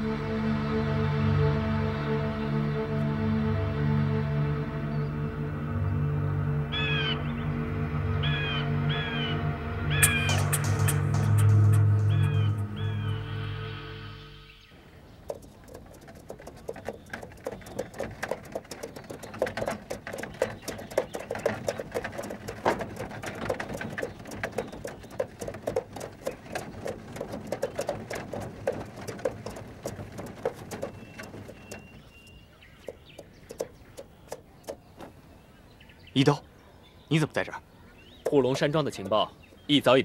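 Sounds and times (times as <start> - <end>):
patter of small taps and clicks: 10.0 - 12.4, 15.3 - 32.1, 32.8 - 35.1.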